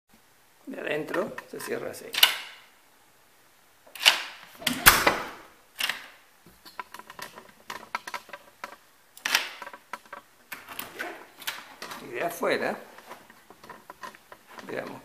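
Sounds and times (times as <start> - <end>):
deadbolt clicks and clunks: 2.1 - 2.6, 3.9 - 12.1.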